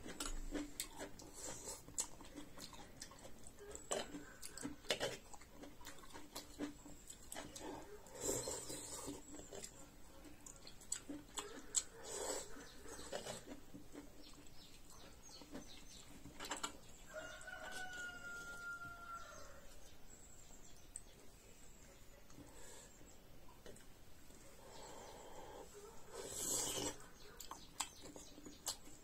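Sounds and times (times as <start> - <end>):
eating sounds: 0.0 - 19.8, 20.7 - 29.0
rooster crowing: 17.1 - 19.7.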